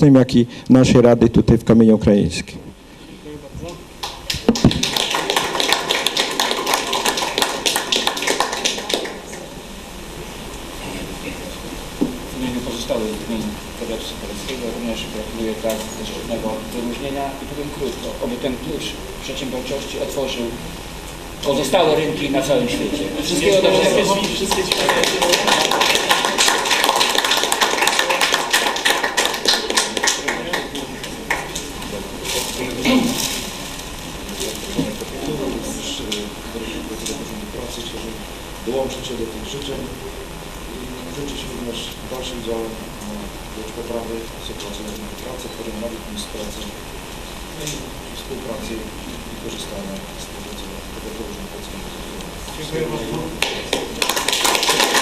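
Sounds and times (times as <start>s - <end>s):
people applauding: 4.0s - 9.5s, 23.8s - 32.1s, 53.2s - 55.0s.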